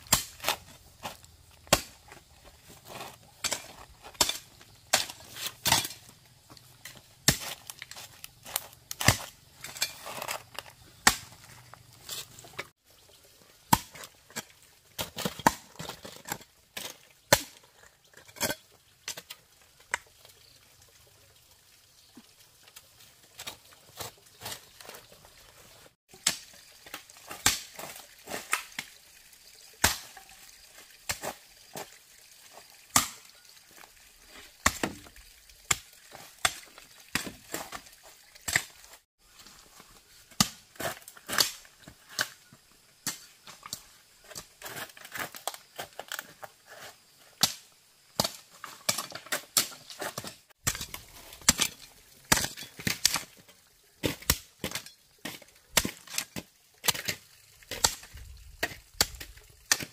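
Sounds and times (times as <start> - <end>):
hand tools chopping bamboo: 0.0 - 12.7, 13.7 - 17.7, 26.1 - 28.9, 32.9 - 33.3, 34.6 - 35.1, 35.7 - 38.9, 40.3 - 47.6, 48.2 - 59.9.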